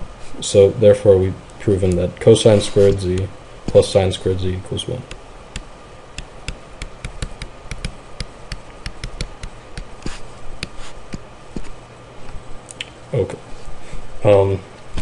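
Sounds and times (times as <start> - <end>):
stylus tapping on tablet screen: 5.5 - 11.7.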